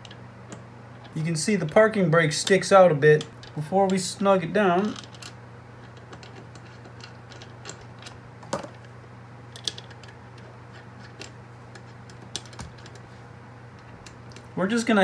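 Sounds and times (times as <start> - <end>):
metal parts clicking and tapping: 0.0 - 4.1, 4.8 - 8.8, 9.5 - 13.0
steady low hum: 0.0 - 15.0.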